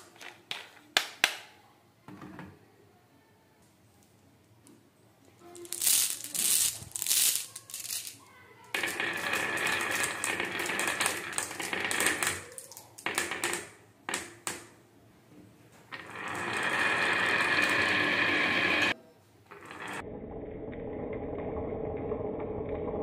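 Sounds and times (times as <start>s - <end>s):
marbles clicking together: 5.6s - 14.7s, 15.9s - 19.0s
marbles rolling on wooden slope: 5.6s - 14.7s, 15.9s - 20.0s.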